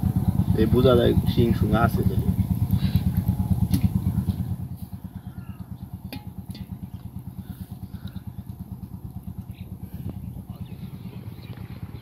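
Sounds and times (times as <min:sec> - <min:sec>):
water pump engine thudding: 0:00.0 - 0:11.6.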